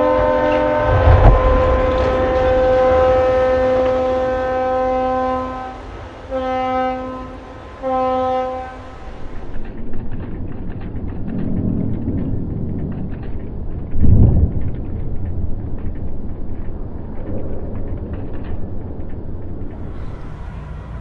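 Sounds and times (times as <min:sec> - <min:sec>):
ship's horn blasts: 0:00.0 - 0:09.4, 0:19.7 - 0:21.0.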